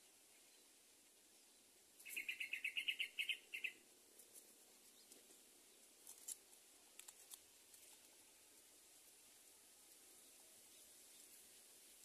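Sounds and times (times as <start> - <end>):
nestling begging chirps: 2.0 - 3.8.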